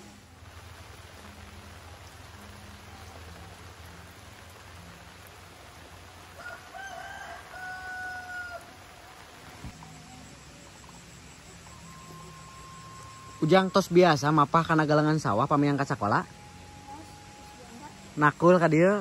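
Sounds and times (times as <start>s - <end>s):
steady background noise: 0.0s - 19.0s
rooster crowing: 6.4s - 9.1s.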